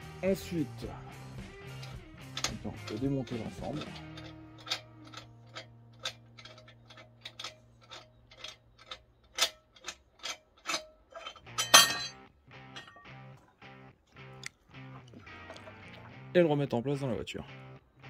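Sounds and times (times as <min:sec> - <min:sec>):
background music: 0:00.0 - 0:08.9, 0:11.2 - 0:18.0
metal clatter: 0:01.7 - 0:13.6.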